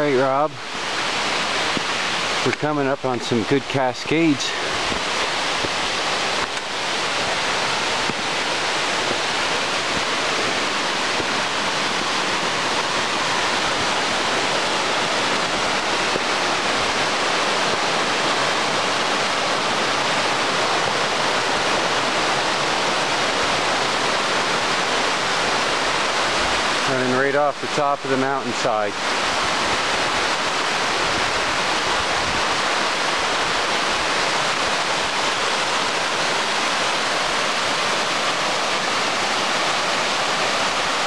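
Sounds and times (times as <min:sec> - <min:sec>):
water cascading over rocks: 0:00.0 - 0:41.0.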